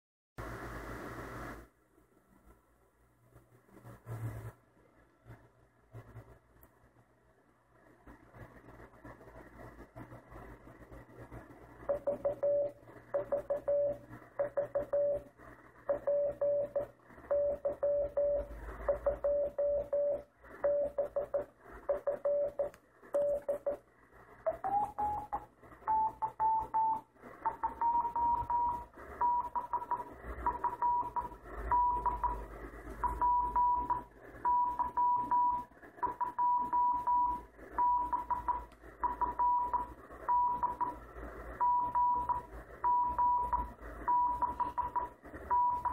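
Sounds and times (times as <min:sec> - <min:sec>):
morse code beep tone: 0:11.9 - 0:15.3, 0:15.9 - 0:23.8, 0:24.5 - 0:32.4, 0:33.0 - 0:41.0, 0:41.6 - 0:45.9.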